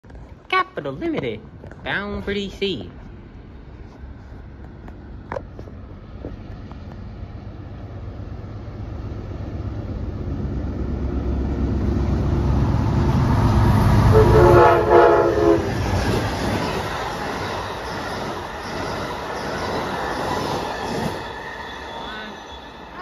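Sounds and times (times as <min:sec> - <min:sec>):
diesel locomotive rumble: 0:01.5 - 0:23.0
multi-tone train horn blast: 0:14.0 - 0:15.9.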